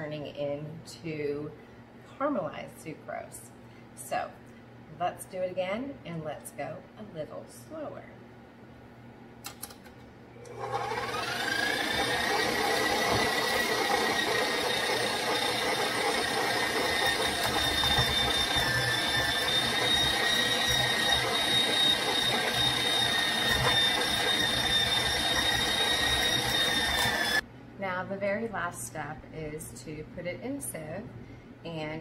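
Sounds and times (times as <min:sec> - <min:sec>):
stand mixer motor whine: 0:10.4 - 0:27.4
grain mill grinding: 0:10.5 - 0:27.4.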